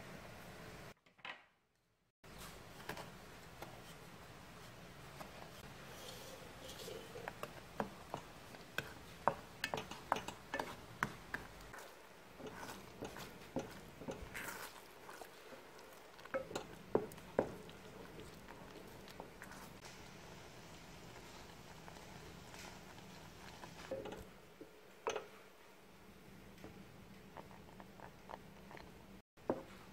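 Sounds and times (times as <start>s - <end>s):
wooden spatula scraping saucepan: 4.6s - 19.9s.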